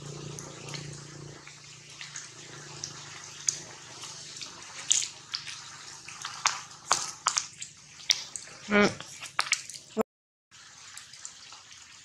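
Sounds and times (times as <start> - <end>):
drips hitting leaves: 1.9 - 9.9.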